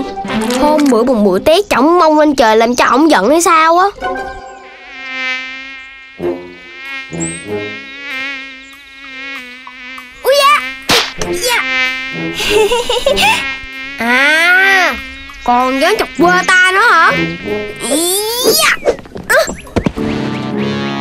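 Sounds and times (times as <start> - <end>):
mosquito buzzing: 4.2 - 18.9.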